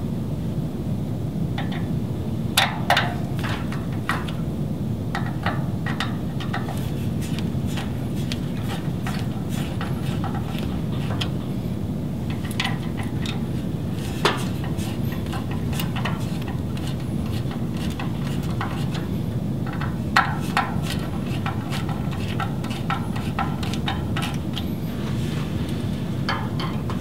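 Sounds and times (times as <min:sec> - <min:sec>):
steady low hum: 0:00.0 - 0:27.0
screwdriver clicks and metallic taps: 0:01.6 - 0:01.9.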